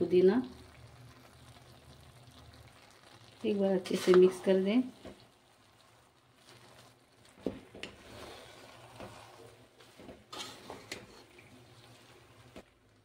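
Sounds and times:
spoon scraping rice in pot: 6.4 - 12.6.

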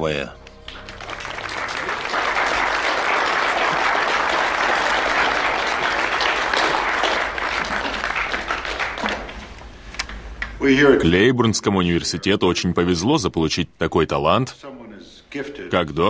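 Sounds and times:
audience applauding: 0.5 - 9.7.

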